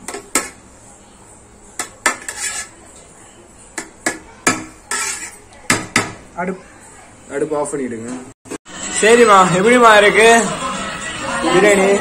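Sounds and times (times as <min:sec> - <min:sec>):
spatula clinking and scraping pot: 0:01.8 - 0:02.8, 0:03.8 - 0:05.5.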